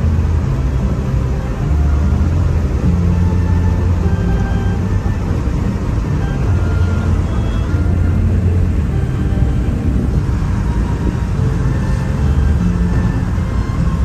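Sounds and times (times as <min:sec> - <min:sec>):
car road and engine noise: 0:00.0 - 0:14.0.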